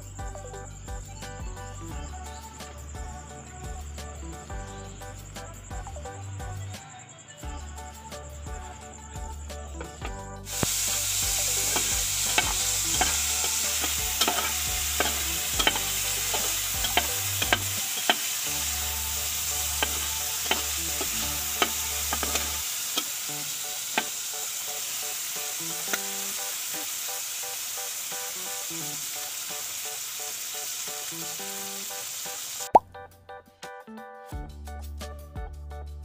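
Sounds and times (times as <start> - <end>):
beetles sizzling in oil: 10.5 - 32.8
spatula scraping a pot: 11.5 - 23.2.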